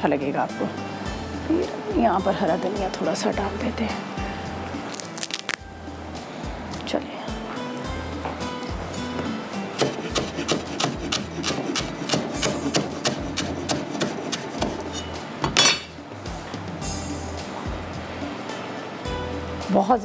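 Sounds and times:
knife chopping on wooden board: 9.1 - 14.9.

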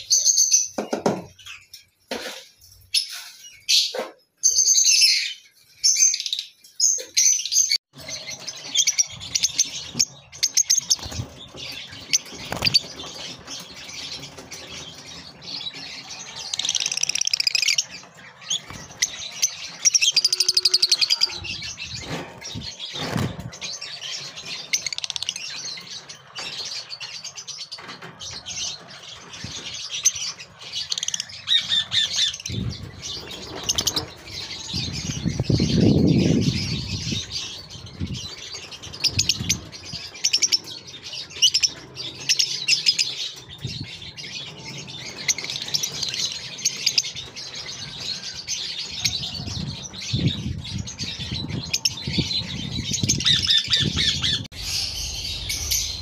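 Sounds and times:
lovebirds chirping: 0.0 - 56.0
low rumble: 53.8 - 56.0.

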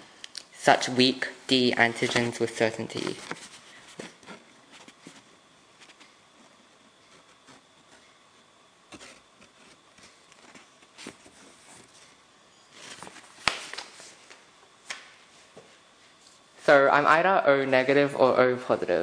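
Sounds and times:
paper leaflet rustling: 1.9 - 6.2, 8.9 - 14.4.

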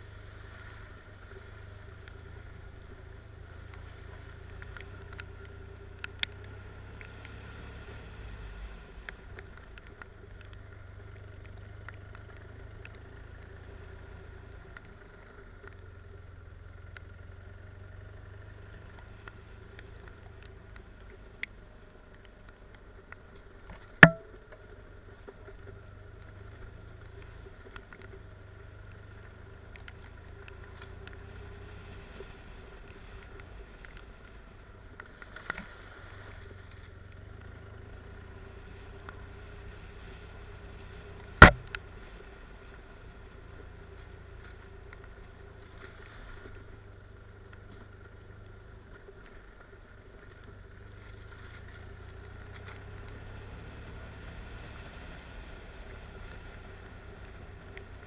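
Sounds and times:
sharp knocks: 24.0 - 24.4, 41.4 - 41.7
motorcycle engine running: 24.0 - 33.2, 36.2 - 45.8.

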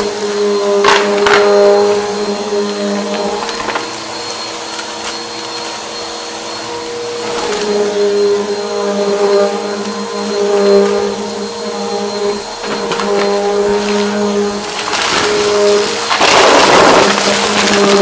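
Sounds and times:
vacuum cleaner running: 0.0 - 18.0
debris ticking in vacuum: 12.0 - 18.0.

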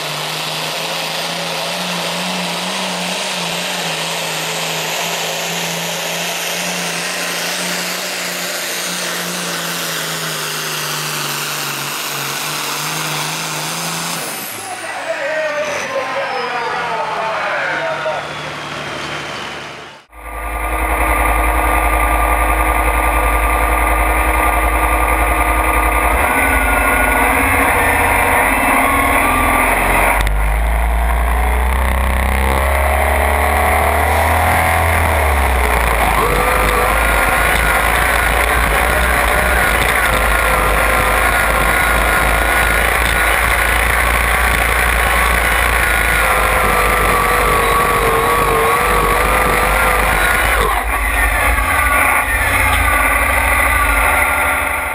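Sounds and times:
diesel engine under load: 0.0 - 54.9
high wavering whine: 20.1 - 54.9.

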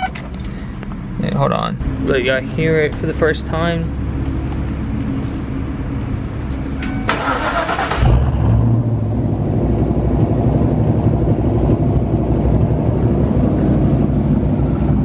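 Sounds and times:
engine cranking: 6.6 - 8.3.

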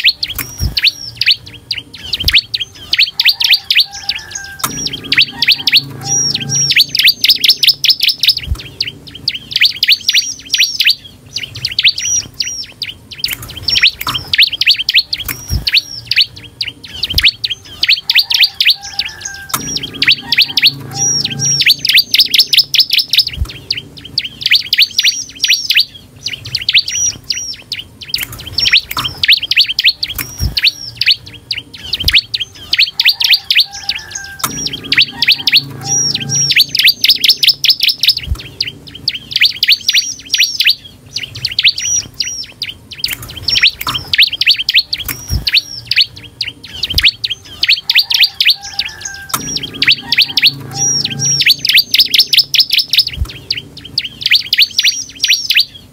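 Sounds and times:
bird singing sharp high notes: 0.0 - 55.9.

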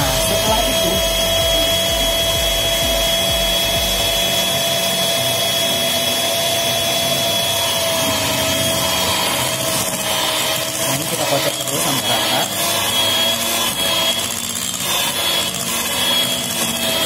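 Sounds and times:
electric hand mixer whining: 0.0 - 17.0.

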